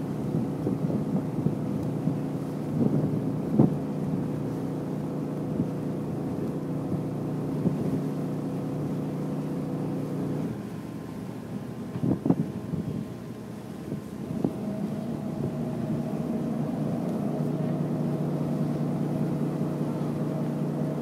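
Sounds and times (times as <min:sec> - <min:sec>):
ferry engines droning: 0:13.1 - 0:21.0.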